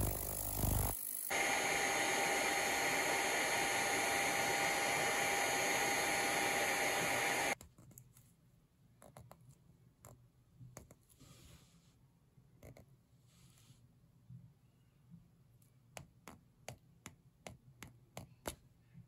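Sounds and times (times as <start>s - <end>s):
hot air gun blowing: 0.0s - 7.6s.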